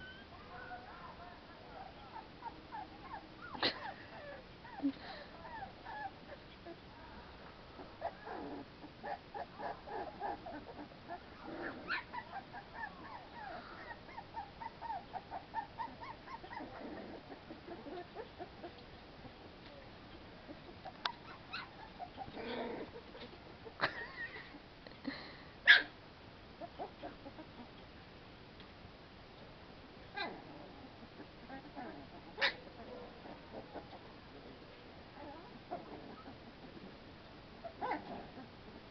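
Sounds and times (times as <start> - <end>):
puppies whimpering and squeaking: 0.0 - 0.8, 1.8 - 4.8, 5.4 - 6.8, 8.0 - 18.8, 20.1 - 23.8.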